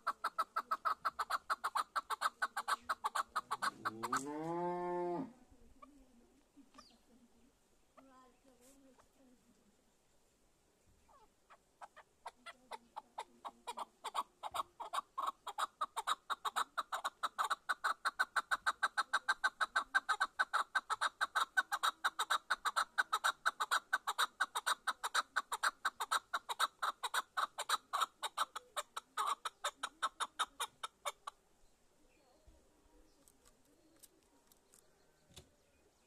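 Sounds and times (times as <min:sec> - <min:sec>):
partridge clucking call: 0:00.0 - 0:04.4, 0:11.1 - 0:31.4.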